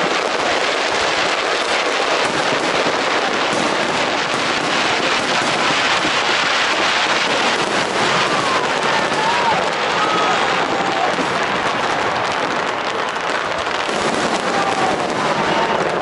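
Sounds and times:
fireworks crackling: 0.0s - 16.0s.

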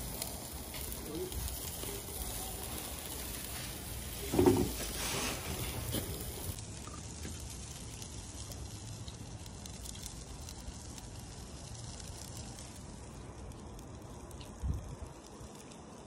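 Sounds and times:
meat sizzling on a grill: 0.0s - 16.0s
short thump: 4.3s - 4.9s.

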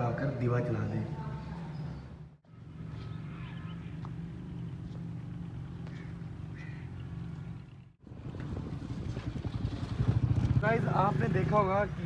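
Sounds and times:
faint bird calls: 5.8s - 7.2s.

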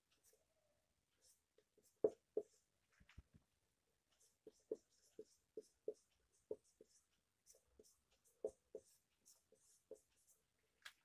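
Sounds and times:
marker squeaking on whiteboard: 1.2s - 2.6s, 4.2s - 10.4s.

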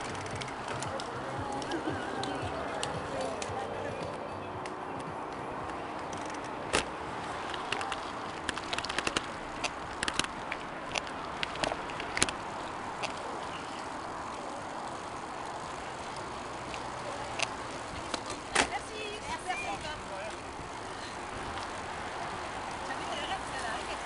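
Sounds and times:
sharp clicks and crackles: 0.0s - 3.5s, 4.6s - 18.8s
steady roadside rush: 0.0s - 24.0s.

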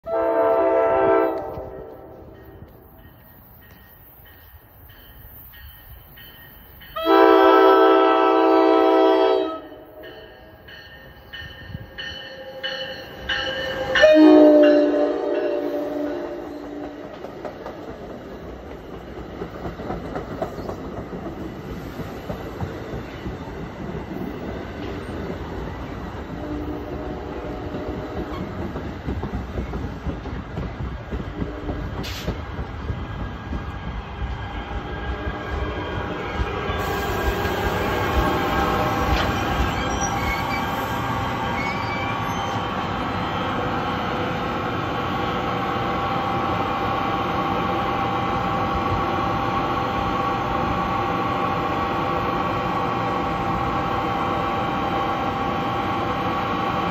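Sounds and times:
train chime horn blast: 0.0s - 2.7s, 6.9s - 10.6s, 11.5s - 16.7s
train wheels rumbling on rails: 0.5s - 56.9s
train bell ringing: 2.2s - 7.7s, 9.4s - 17.0s
short hiss: 32.0s - 32.4s.

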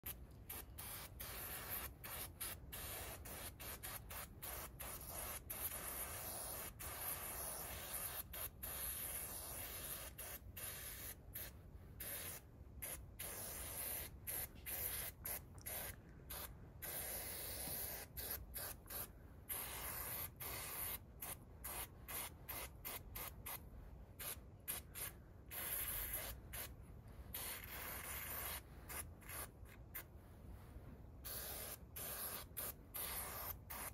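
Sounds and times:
spray paint can hissing: 0.0s - 23.6s, 24.2s - 26.7s, 27.3s - 30.0s, 31.2s - 33.9s.

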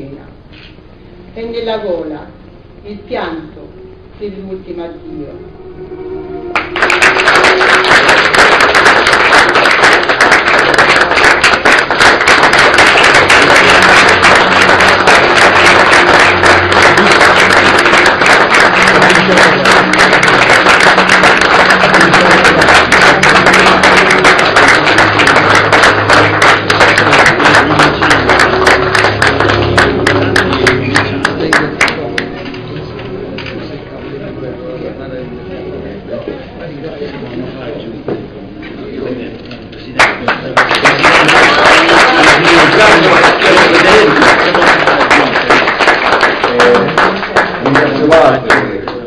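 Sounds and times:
audience applauding: 6.5s - 32.5s, 39.9s - 49.0s.

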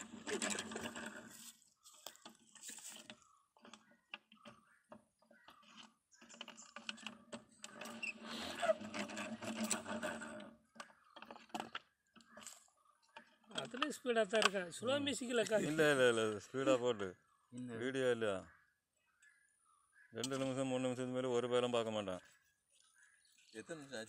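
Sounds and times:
rattling and rubbing: 0.0s - 12.6s.

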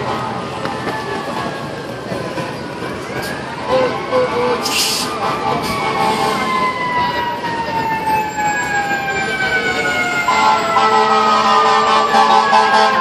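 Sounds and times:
fire truck siren wailing: 2.7s - 13.0s.

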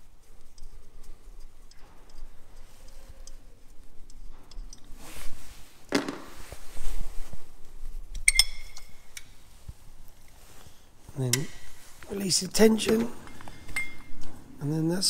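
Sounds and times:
ringing metallic clink: 8.3s - 9.0s, 13.3s - 14.2s.

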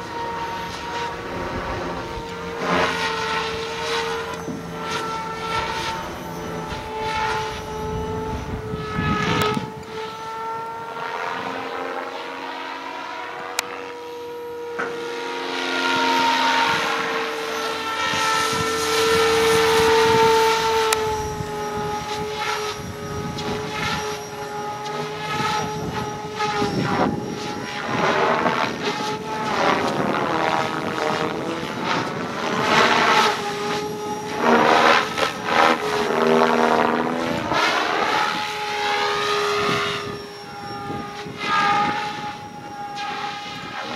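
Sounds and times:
model helicopter whine: 0.0s - 43.9s
rotor blades swishing: 13.1s - 43.9s.

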